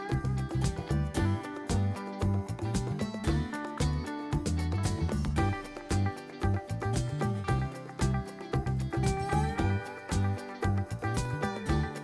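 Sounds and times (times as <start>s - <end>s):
upbeat music with bass and guitar: 0.0s - 12.0s.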